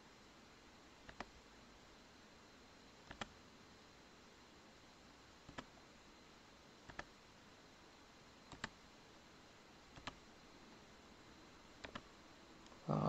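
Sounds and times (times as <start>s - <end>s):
faint room hiss: 0.0s - 13.0s
computer mouse button clicking: 11.8s - 12.0s.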